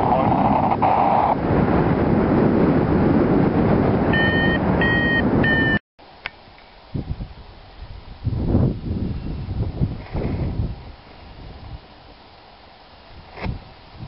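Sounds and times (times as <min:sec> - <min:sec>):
wind rushing over microphone: 0:00.0 - 0:05.8, 0:06.8 - 0:14.0
variometer beeping: 0:04.2 - 0:05.8.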